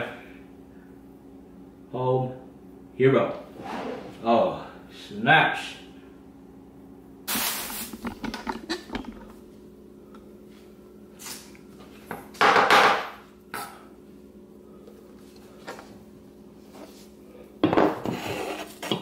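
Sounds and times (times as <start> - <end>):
faint steady hum: 0.0 - 19.0
knife scraping cutting board: 18.0 - 19.0.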